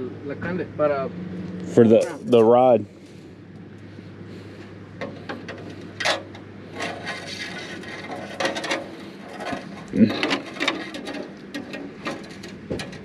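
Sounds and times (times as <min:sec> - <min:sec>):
steady low hum: 0:00.0 - 0:13.0
metal tools clinking and scraping: 0:05.0 - 0:13.0.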